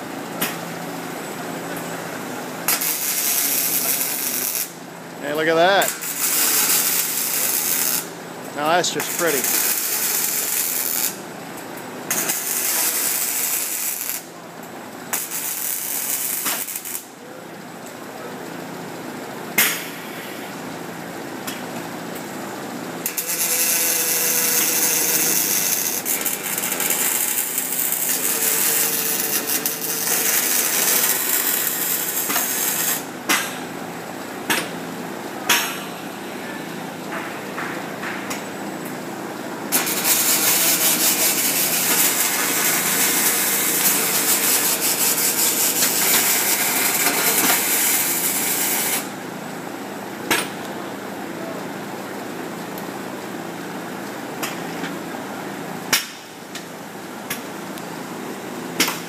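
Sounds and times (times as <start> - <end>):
welding arc crackling hiss: 2.0 - 14.4, 15.0 - 17.1, 22.9 - 33.1, 39.7 - 49.2.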